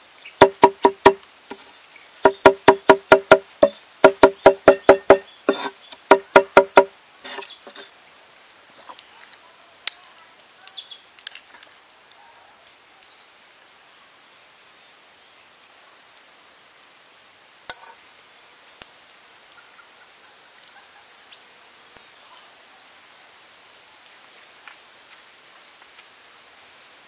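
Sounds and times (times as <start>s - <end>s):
cleaver chopping on cutting board: 0.4s - 1.2s, 2.2s - 7.5s.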